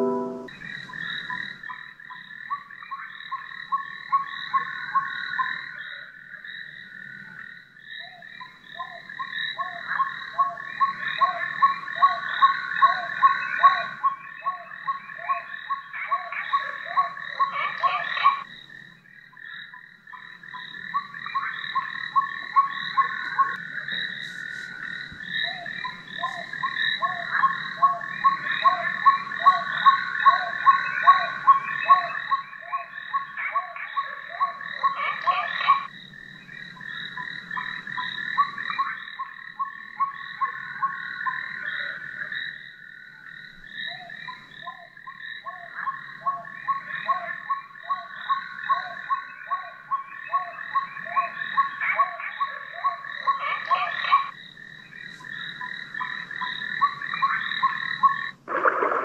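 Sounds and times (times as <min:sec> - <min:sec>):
high-pitched chirring: 0:00.0 - 0:00.5
frogs croaking: 0:00.0 - 0:59.0.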